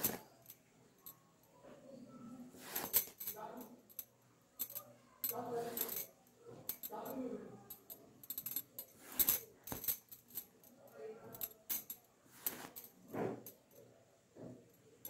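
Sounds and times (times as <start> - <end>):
needle and thread through cloth: 0.0 - 0.5, 1.6 - 3.9, 8.5 - 10.3, 11.3 - 13.7.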